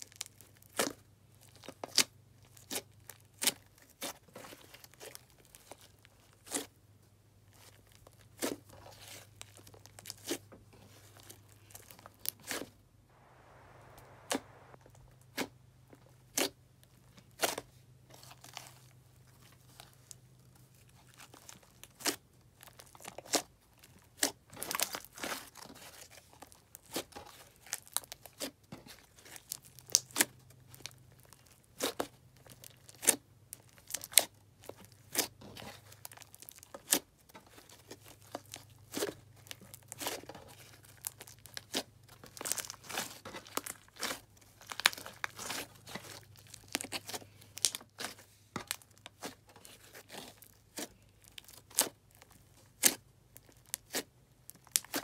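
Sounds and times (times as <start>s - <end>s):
fingers squishing sticky slime: 48.9s - 55.0s.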